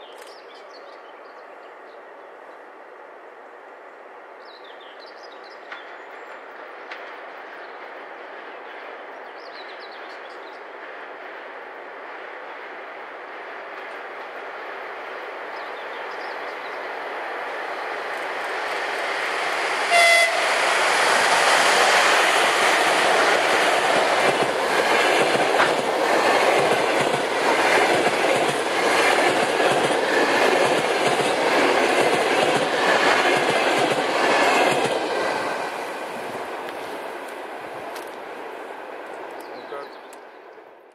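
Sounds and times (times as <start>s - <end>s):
electric locomotive passing: 0.6s - 40.9s
train horn blast: 19.9s - 20.8s
wheels clacking over rail joints: 20.9s - 35.9s.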